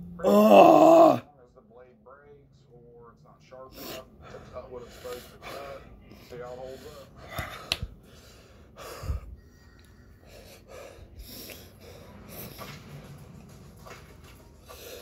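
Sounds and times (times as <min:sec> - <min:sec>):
man breathing heavily with gasps: 0:04.7 - 0:09.4.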